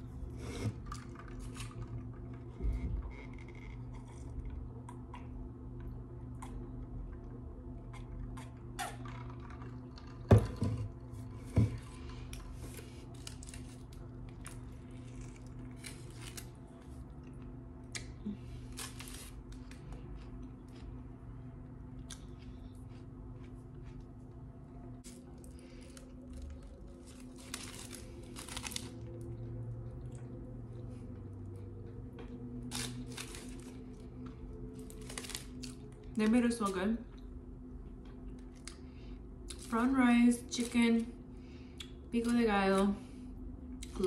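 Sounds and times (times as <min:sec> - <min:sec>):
steady low hum: 0:00.0 - 0:44.0
foil wrapper crackling: 0:12.8 - 0:16.8, 0:18.6 - 0:19.9, 0:25.0 - 0:29.2, 0:32.7 - 0:34.1, 0:34.7 - 0:36.2
person chewing food: 0:21.9 - 0:24.4.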